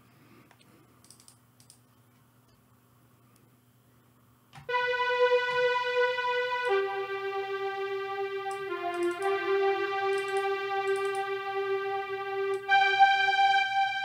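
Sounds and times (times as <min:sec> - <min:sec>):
strings playing held chords: 0:04.6 - 0:14.0.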